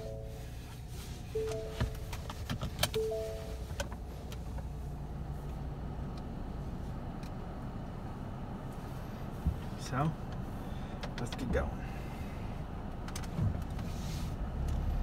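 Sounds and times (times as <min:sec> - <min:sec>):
two-note electronic chime: 0:00.0 - 0:00.5, 0:01.4 - 0:02.1, 0:03.0 - 0:03.6
car engine idling: 0:00.0 - 0:15.0.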